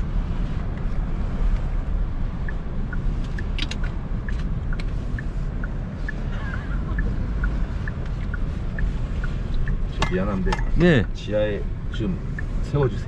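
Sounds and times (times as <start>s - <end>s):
road and engine rumble: 0.0s - 13.0s
light regular ticking: 0.6s - 13.0s.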